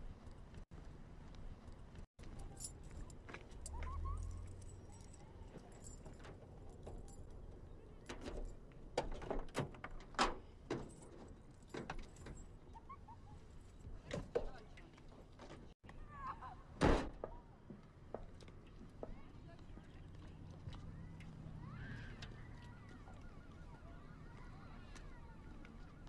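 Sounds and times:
car keys jangling in lock: 8.0 - 12.5.

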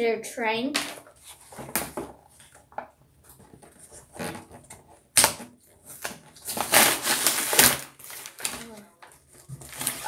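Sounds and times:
cardboard box rustling: 9.2 - 10.0.

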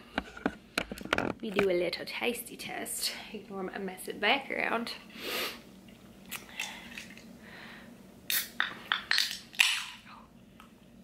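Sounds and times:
can opening hiss: 8.3 - 10.0.

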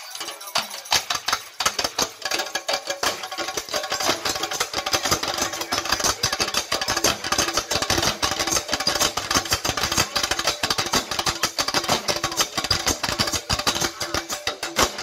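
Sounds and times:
drum ensemble playing fast rhythm: 0.0 - 15.0.

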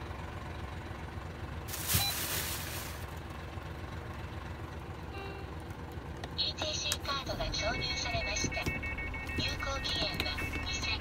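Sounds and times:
diesel engine idling: 0.0 - 11.0
faint short beep: 1.9 - 2.3.

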